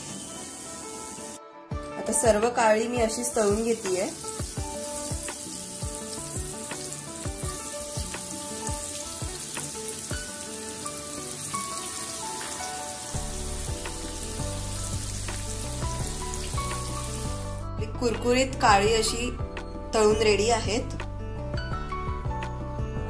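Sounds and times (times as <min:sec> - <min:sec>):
vegetable slices deep-frying in oil: 0:03.2 - 0:17.6
background music with bass: 0:13.2 - 0:23.0.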